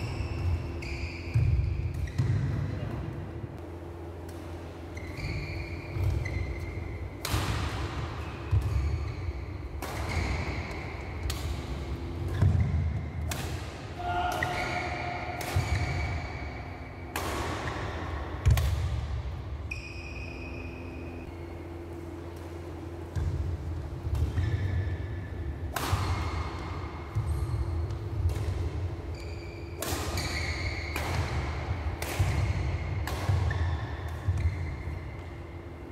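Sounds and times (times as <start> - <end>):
shoes squeaking on court: 4.8 - 7.0
racket hitting shuttlecock: 5.3 - 19.2, 25.6 - 35.3.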